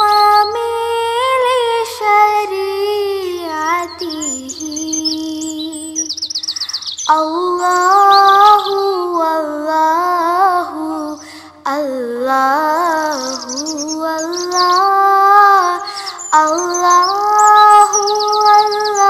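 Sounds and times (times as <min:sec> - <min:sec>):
smooth wordless melody: 0:00.0 - 0:19.0
high bird-like chirps: 0:03.4 - 0:09.3, 0:12.8 - 0:19.0.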